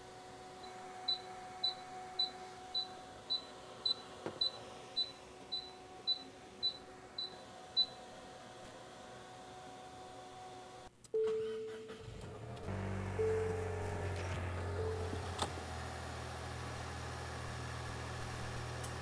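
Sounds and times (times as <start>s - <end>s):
machine low hum: 0.0s - 19.0s
short high-pitched beeps: 13.2s - 14.0s.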